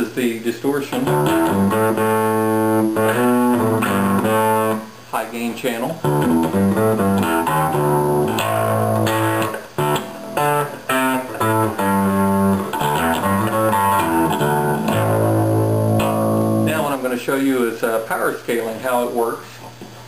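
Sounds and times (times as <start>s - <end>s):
distorted electric bass notes: 0.9s - 5.0s, 5.9s - 17.0s.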